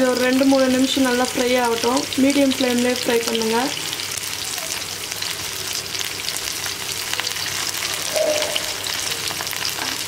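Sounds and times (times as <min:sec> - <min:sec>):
prawns sizzling in oil: 0:00.0 - 0:10.0
brief tone: 0:08.1 - 0:08.8.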